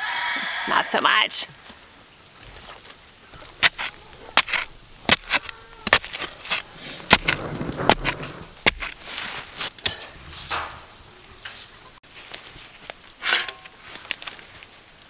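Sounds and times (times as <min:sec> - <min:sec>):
dirt sliding: 0:02.4 - 0:15.0
shovel scraping gravel: 0:03.4 - 0:10.7, 0:11.5 - 0:14.7.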